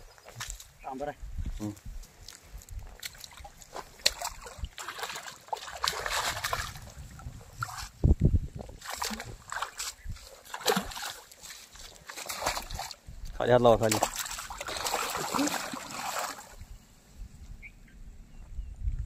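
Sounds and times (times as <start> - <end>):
fish splashing in water: 3.0 - 7.9, 8.7 - 13.0, 13.8 - 16.6.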